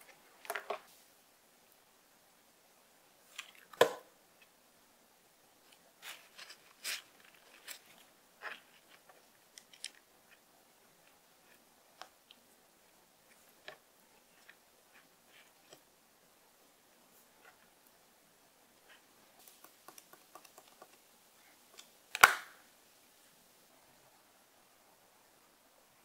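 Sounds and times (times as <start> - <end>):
small plastic clicks and taps: 19.4 - 21.0.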